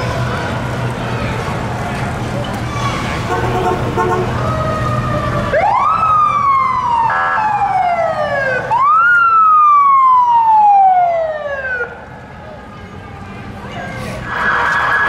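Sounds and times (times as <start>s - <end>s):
car horn honk: 3.3s - 4.3s
police siren wailing: 4.0s - 12.0s, 14.2s - 15.0s.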